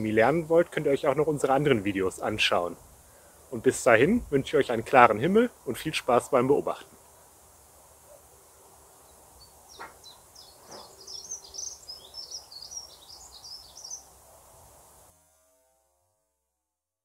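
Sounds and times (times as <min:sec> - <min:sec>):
songbird twittering: 0:09.0 - 0:14.1.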